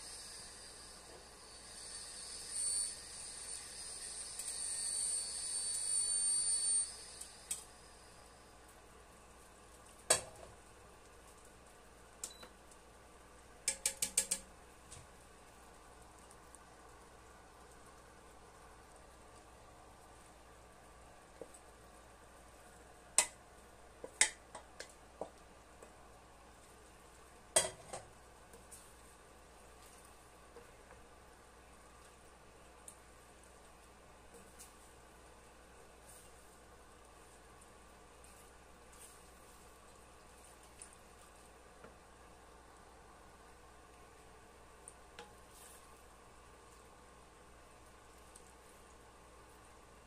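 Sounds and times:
induction hob whine: 0:00.0 - 0:11.1
sauce simmering hiss: 0:00.0 - 0:50.0.

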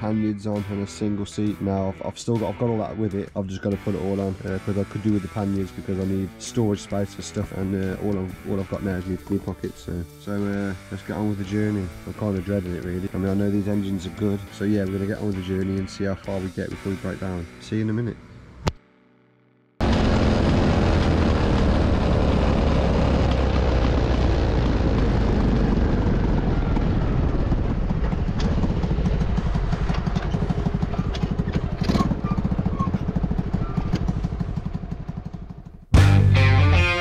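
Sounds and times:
motorcycle engine running: 0:19.8 - 0:36.1
wind on microphone: 0:19.9 - 0:29.8.

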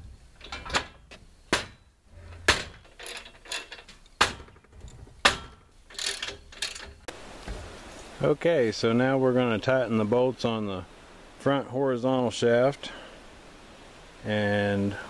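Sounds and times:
steel tube knocking and clanking: 0:00.4 - 0:07.0.

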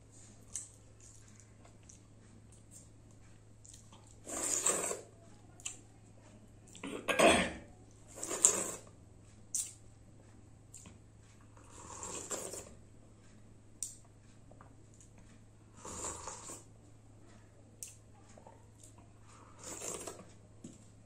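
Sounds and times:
metal dishes clinking: 0:06.9 - 0:07.7
eating noises: 0:09.5 - 0:09.8.

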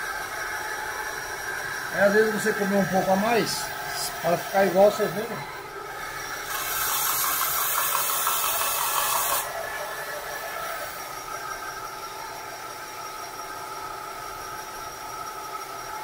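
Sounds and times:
belt sander sanding wood: 0:00.0 - 0:12.2
belt sander running unloaded: 0:00.0 - 0:15.6.

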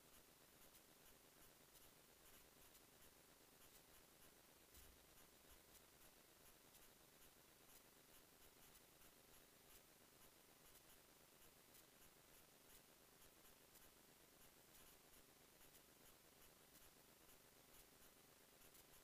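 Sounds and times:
faint steady hiss: 0:00.0 - 0:19.0
faint ticks: 0:00.0 - 0:19.0.

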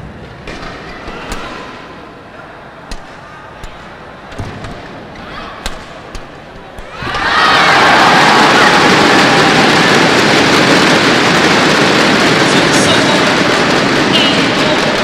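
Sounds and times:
arena crowd noise: 0:00.0 - 0:15.0
rackets striking shuttlecock: 0:02.9 - 0:07.2.

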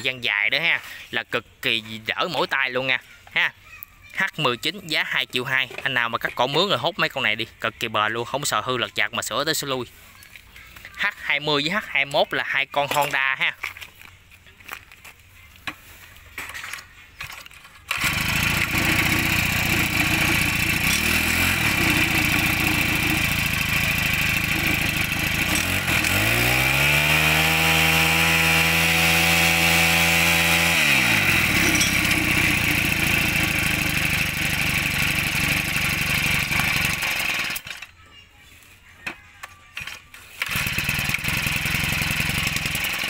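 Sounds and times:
brush cutter engine revving: 0:17.8 - 0:37.9, 0:39.8 - 0:43.0.

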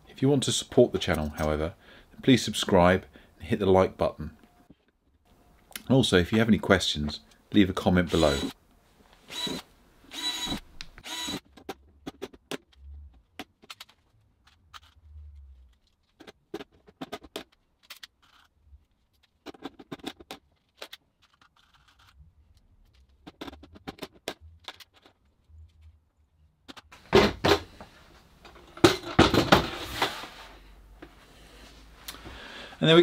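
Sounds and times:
hand rivet gun: 0:09.3 - 0:11.6.

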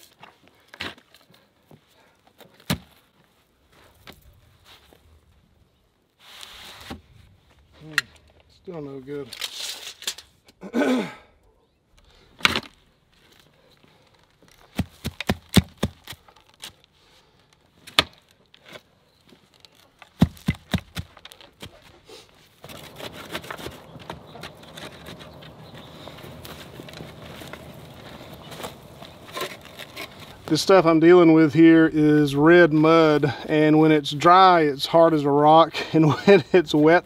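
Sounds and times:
post hole diggers chopping clay: 0:14.7 - 0:16.7, 0:20.1 - 0:21.9, 0:22.6 - 0:30.6.

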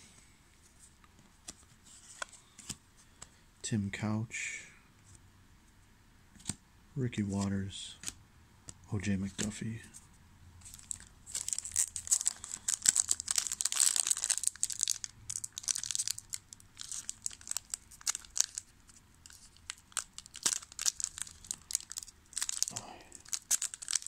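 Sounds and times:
foil wrapper tearing and crinkling: 0:10.7 - 0:24.0.

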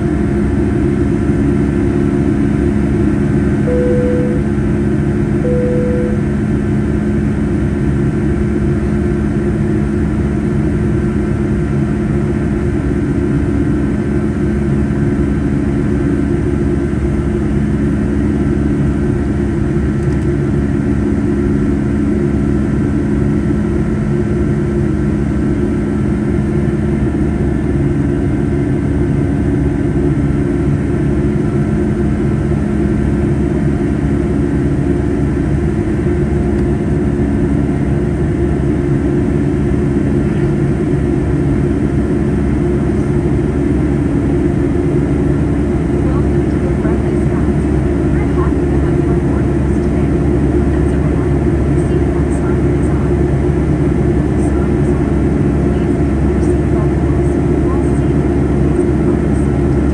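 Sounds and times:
jet engine drone in cabin: 0:00.0 - 0:59.9.

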